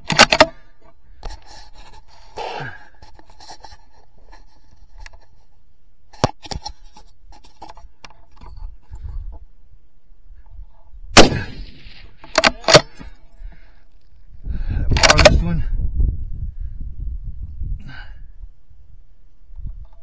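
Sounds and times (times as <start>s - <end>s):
rifle shot: 11.2s - 12.9s.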